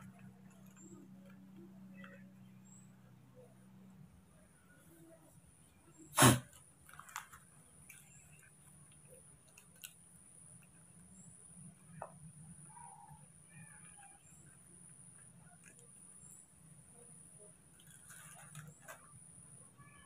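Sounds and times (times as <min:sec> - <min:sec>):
faint steady hum: 0:00.0 - 0:20.0
loud sharp crackle: 0:06.2 - 0:08.4
foil sachet crinkling: 0:17.8 - 0:19.0.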